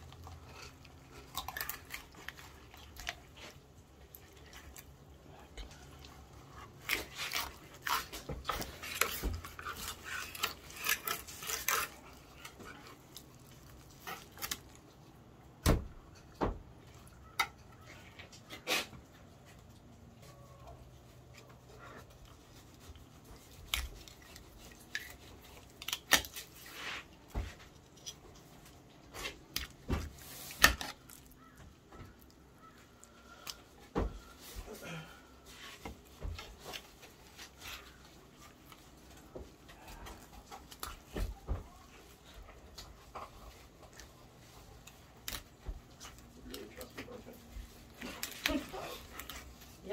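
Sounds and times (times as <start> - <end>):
knife scraping: 6.6 - 13.0, 22.7 - 28.3.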